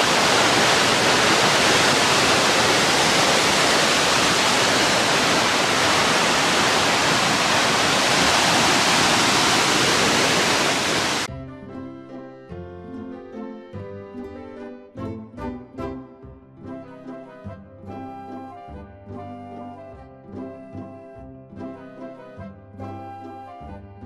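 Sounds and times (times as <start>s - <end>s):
waterfall rushing onto rocks: 0.0s - 11.3s
music: 11.3s - 24.0s.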